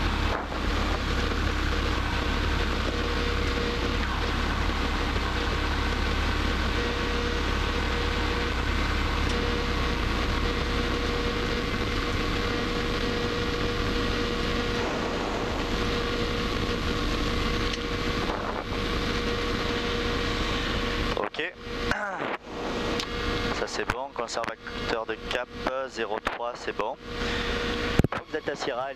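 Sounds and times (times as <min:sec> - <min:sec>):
propeller plane engine drone: 0:00.0 - 0:28.9
thin steady whine: 0:00.0 - 0:28.9.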